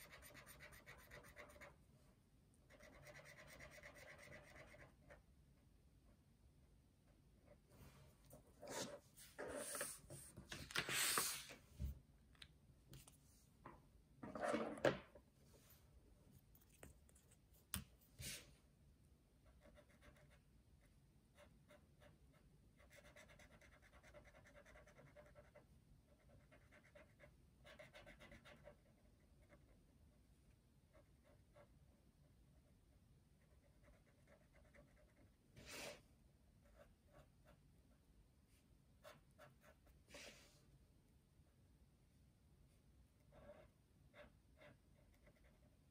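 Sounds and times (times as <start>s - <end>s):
felt-tip marker scratching on paper: 0.0s - 1.8s, 2.7s - 5.0s, 22.8s - 29.7s
paper sliding on a tabletop: 8.6s - 11.9s, 35.6s - 36.0s.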